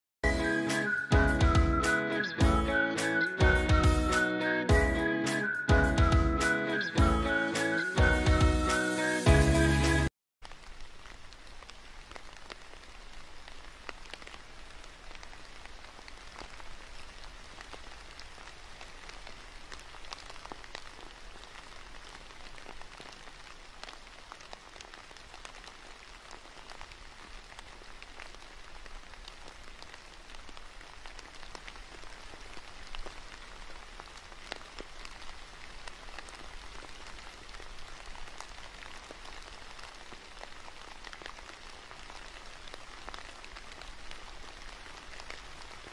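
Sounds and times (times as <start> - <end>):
steady rain falling: 4.8 - 45.9.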